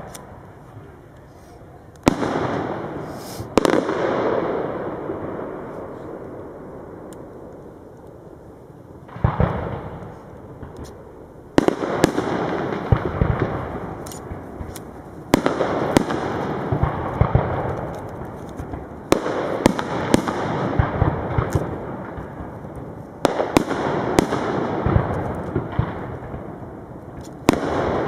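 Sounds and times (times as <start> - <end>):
firework crackle: 0.0 - 28.0
firework shells bursting: 9.0 - 28.0.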